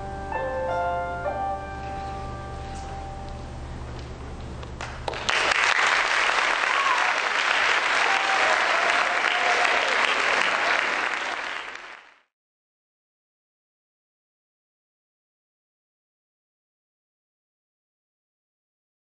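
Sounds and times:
piano chord: 0.0s - 3.8s
audience applauding: 4.8s - 12.3s.

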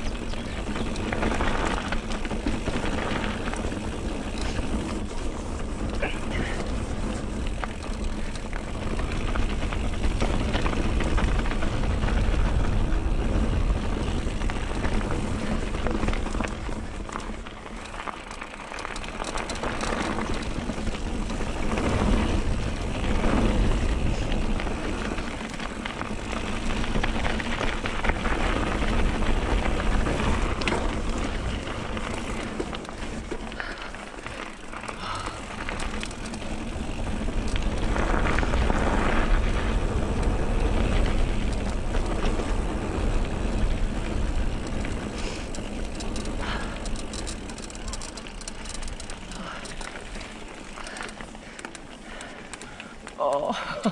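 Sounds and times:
wind rush on microphone: 0.0s - 17.8s, 34.9s - 48.2s
bike rattling: 0.0s - 53.9s
tyres on stones: 43.7s - 53.9s.

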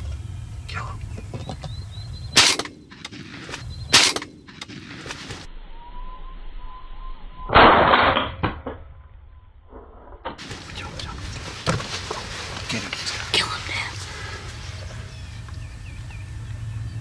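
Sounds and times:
shotgun shots: 2.4s - 5.3s.

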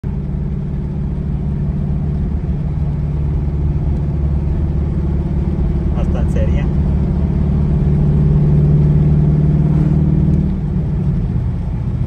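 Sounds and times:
car engine humming: 0.0s - 12.0s.

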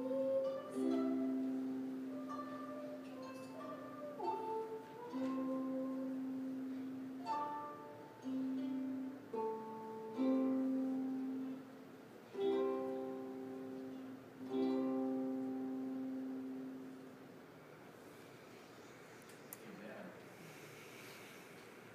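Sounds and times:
harp plucked chords: 0.0s - 17.1s.

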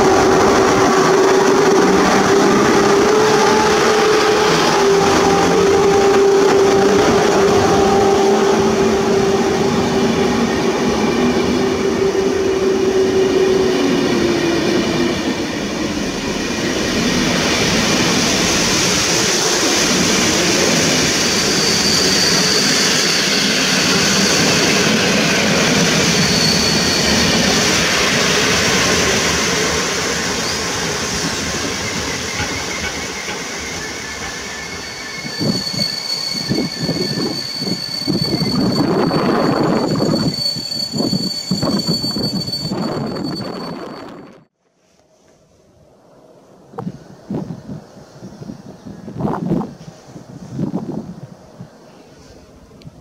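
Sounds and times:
high wheel squeal: 0.0s - 44.5s
train wheels clattering on rails: 15.4s - 38.7s.

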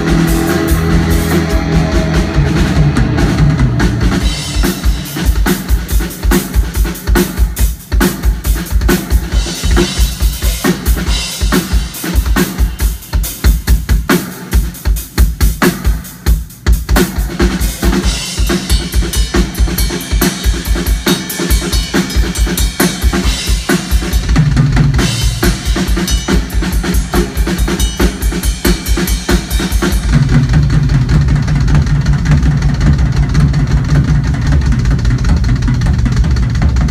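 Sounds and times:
low bass notes: 0.0s - 6.3s, 30.0s - 36.9s
cymbals: 0.0s - 7.8s, 17.7s - 30.4s
bass drum beats: 0.0s - 36.9s.

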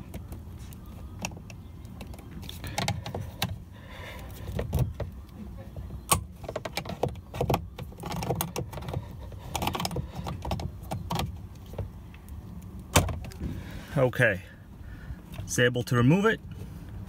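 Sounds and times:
plastic clicking and scraping: 6.4s - 11.9s.

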